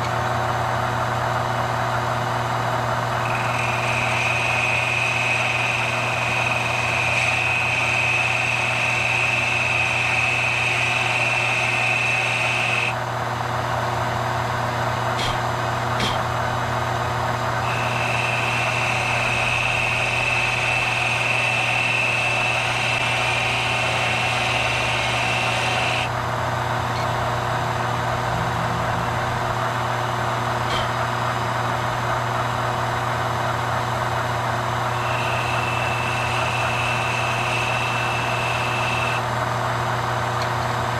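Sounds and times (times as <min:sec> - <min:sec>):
metal lathe humming: 0:02.8 - 0:13.0, 0:17.2 - 0:28.3, 0:29.0 - 0:39.4
high whine: 0:03.0 - 0:13.0, 0:17.5 - 0:26.2, 0:34.2 - 0:39.3.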